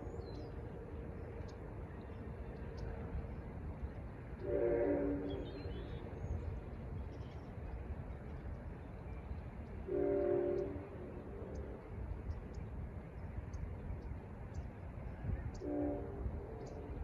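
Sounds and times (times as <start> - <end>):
distant train horn blasts: 4.4 - 6.1, 9.8 - 11.7, 15.5 - 17.0.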